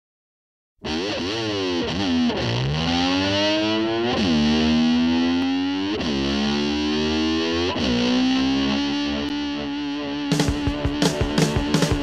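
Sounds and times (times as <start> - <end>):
distorted electric slide guitar: 0.8 - 12.0
band playing: 10.3 - 12.0.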